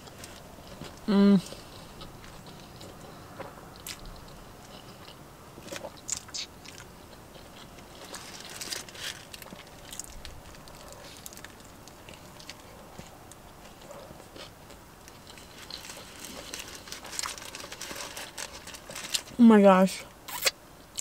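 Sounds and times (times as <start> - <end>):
person chewing: 0.0 - 19.3, 20.3 - 21.0
bite crackling: 20.3 - 21.0.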